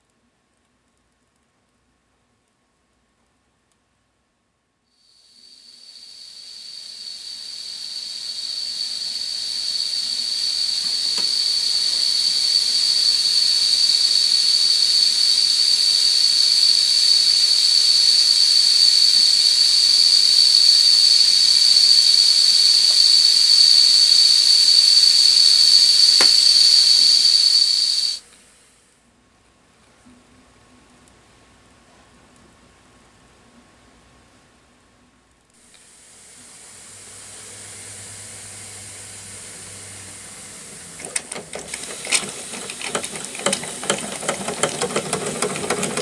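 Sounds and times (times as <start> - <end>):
steam hissing: 5.0 - 28.8, 35.6 - 46.0
steam whistle: 5.3 - 28.2.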